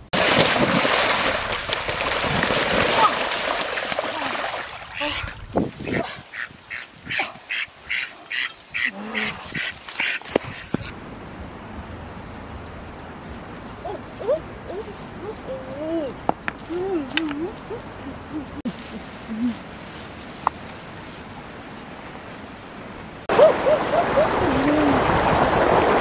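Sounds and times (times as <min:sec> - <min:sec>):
duck quacking: 0:05.0 - 0:10.9.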